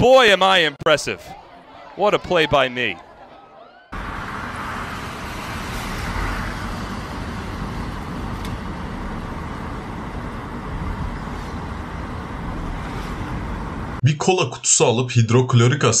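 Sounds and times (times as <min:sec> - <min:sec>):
road noise: 0:00.0 - 0:14.0
wind buffeting: 0:04.0 - 0:14.0
wind rushing at car window: 0:04.0 - 0:14.0.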